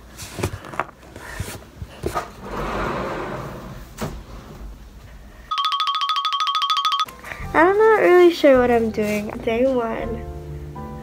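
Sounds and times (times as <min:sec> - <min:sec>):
sliding closet door rolling: 0:02.2 - 0:04.9.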